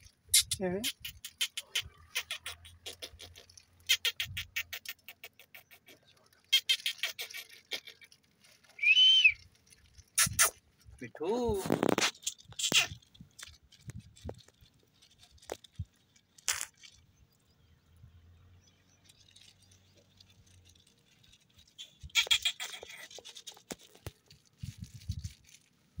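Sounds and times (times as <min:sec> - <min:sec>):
parakeets squawking: 0:00.4 - 0:08.0, 0:22.1 - 0:23.1.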